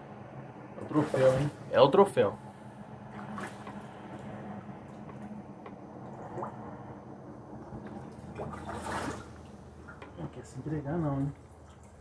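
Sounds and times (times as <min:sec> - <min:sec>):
steady low hum: 0:00.0 - 0:12.0
fish splashing at water surface: 0:03.0 - 0:07.0, 0:07.7 - 0:10.0.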